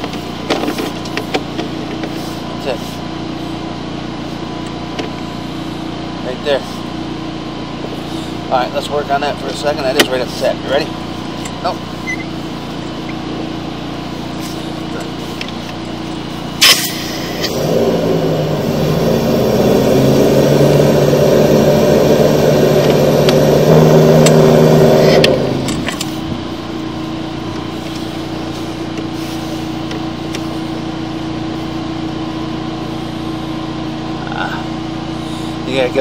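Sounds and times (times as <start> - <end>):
engine and pump running: 0.0 - 36.0
sharp machine click: 16.6 - 17.5.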